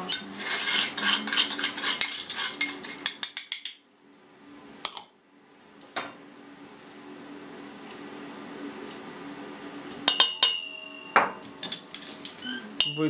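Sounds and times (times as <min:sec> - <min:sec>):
glass dish clinking down: 0:06.0 - 0:06.3, 0:10.1 - 0:13.0.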